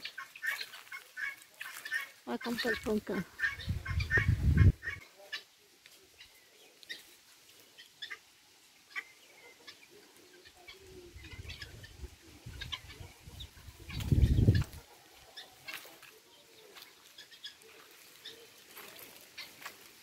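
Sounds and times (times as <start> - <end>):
guineafowl clucking: 0.0 - 20.0
low rumble on microphone: 3.6 - 4.8.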